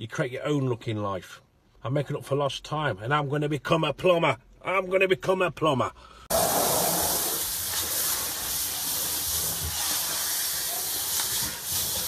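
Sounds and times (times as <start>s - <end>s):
water spraying from leaking pipe: 6.3s - 12.0s.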